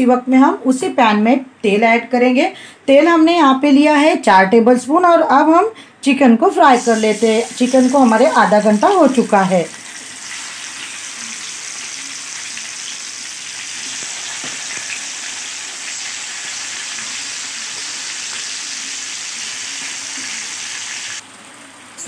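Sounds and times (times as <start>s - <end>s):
chicken sizzling in hot oil: 6.7s - 22.0s.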